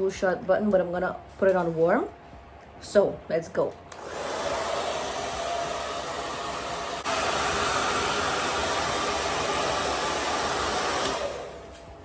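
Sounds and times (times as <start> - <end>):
hair dryer blowing: 3.9 - 12.0.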